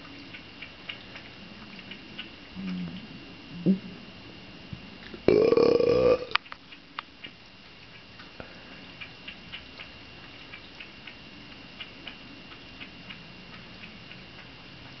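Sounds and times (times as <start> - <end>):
cat lapping liquid: 0.0 - 2.3.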